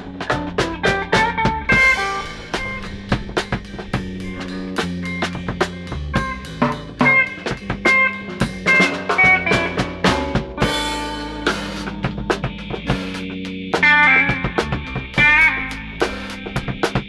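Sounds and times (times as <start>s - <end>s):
bass and guitar notes: 0.0s - 17.0s
drum kit playing: 0.0s - 17.0s
cymbal crash: 1.7s - 7.6s.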